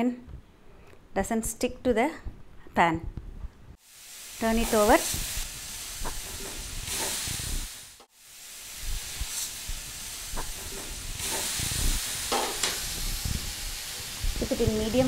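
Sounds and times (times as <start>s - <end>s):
oil sizzling on a hot pan: 3.8s - 15.0s.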